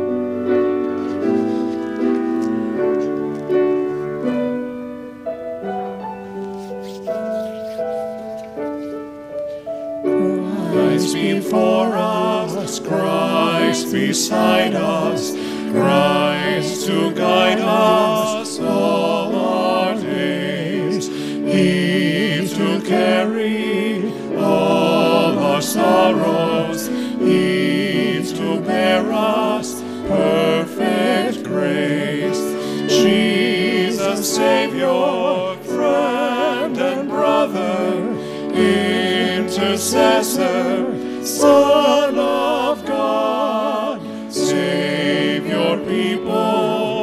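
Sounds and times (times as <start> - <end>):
held accompaniment: 0.0 - 47.0
hymn sung with vibrato: 10.2 - 47.0.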